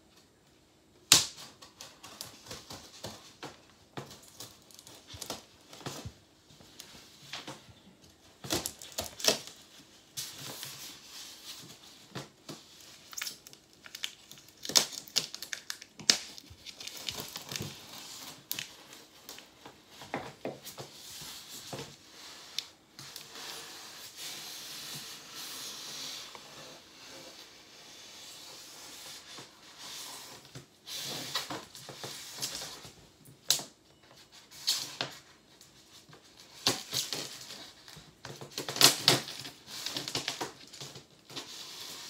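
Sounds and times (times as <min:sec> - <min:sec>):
knife scraping styrofoam: 0:22.1 - 0:31.5.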